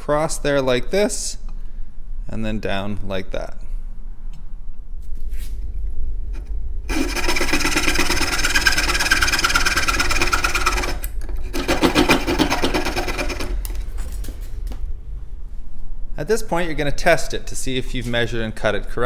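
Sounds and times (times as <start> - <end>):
coping saw rasping through wood: 6.9 - 13.6.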